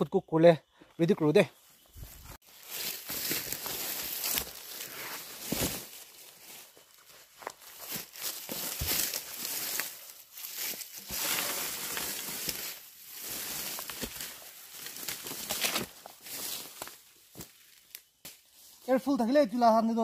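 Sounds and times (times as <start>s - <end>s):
dry leaves rustling and crunching: 2.0s - 18.2s
twigs snapping: 2.6s - 4.8s, 7.4s - 18.5s.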